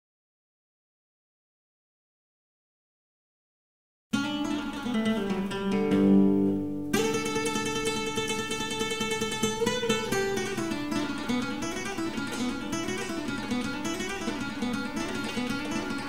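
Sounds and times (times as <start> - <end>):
acoustic guitar music: 4.2 - 16.0.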